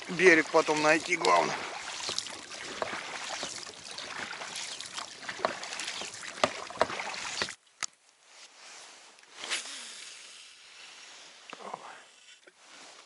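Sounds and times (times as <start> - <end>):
oars splashing through slush ice: 0.0 - 7.6
faint hiss: 8.1 - 13.0.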